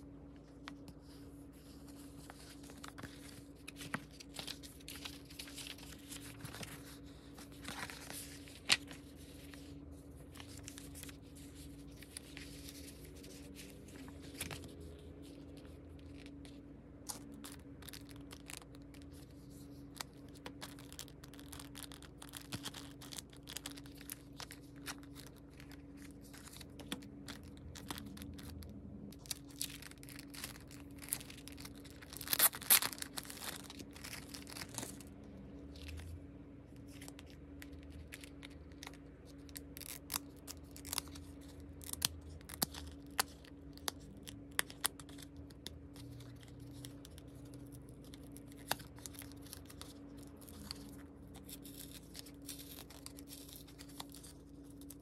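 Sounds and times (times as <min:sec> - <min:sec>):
plastic package crinkling: 0:01.7 - 0:55.0.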